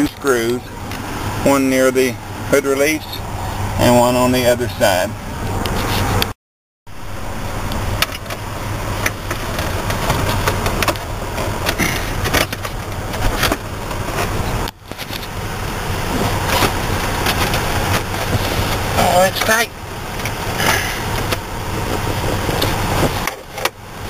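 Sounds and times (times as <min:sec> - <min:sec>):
steady low hum: 0:06.9 - 0:24.0.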